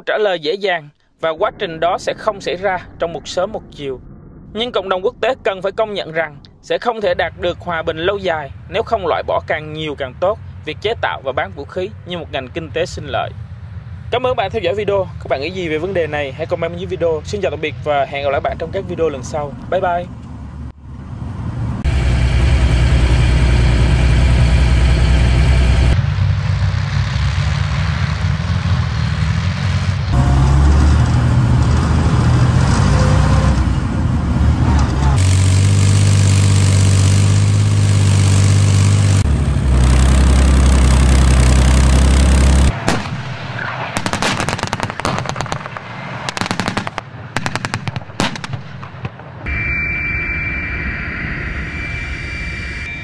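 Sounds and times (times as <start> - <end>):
tank engine running heavily: 11.6 - 43.1
sharp bangs like gunfire: 42.7 - 49.5.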